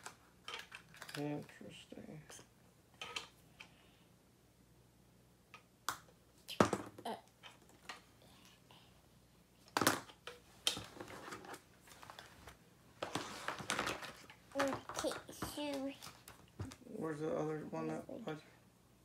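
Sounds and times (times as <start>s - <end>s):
plastic toy pieces clicking: 0.5s - 1.2s.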